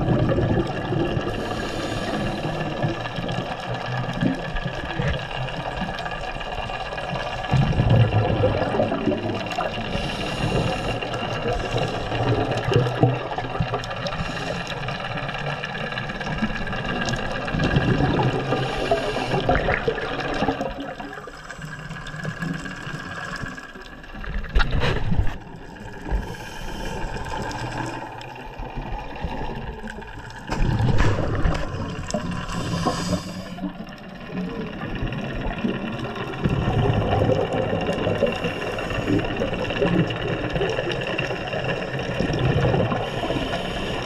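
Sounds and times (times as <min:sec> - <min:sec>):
exhaled bubbles rumbling: 0:00.0 - 0:44.0
steady mechanical hum: 0:00.0 - 0:44.0
underwater diver breathing: 0:01.0 - 0:03.6, 0:08.6 - 0:23.9, 0:25.2 - 0:35.4, 0:37.8 - 0:44.0.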